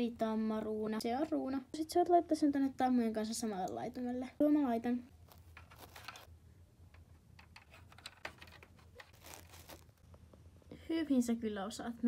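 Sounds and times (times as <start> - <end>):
rustling in grass: 9.2 - 10.0.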